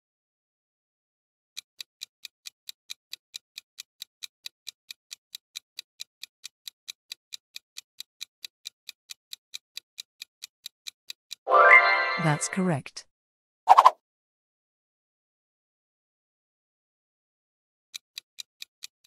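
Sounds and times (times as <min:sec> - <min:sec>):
clock ticking: 0:01.6 - 0:11.4, 0:17.9 - 0:19.0.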